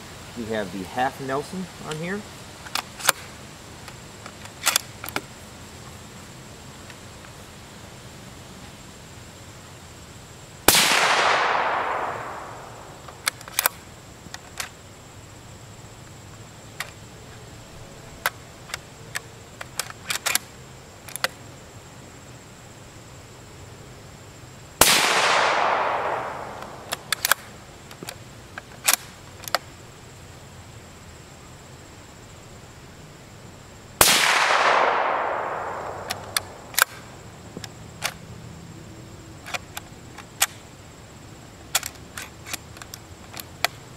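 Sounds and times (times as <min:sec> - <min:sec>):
suppressed rifle shots: 0:10.7 - 0:13.7, 0:24.8 - 0:27.5, 0:34.0 - 0:37.1.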